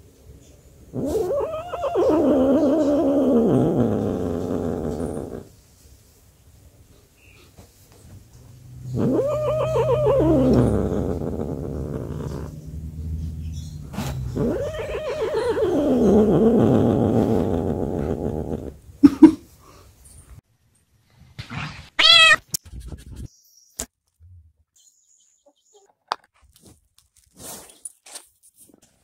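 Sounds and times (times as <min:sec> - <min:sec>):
cat yowling meows: 0:01.0 - 0:05.2, 0:09.0 - 0:12.5, 0:14.3 - 0:17.3, 0:22.0 - 0:22.5
second cat short meow: 0:22.0 - 0:22.5.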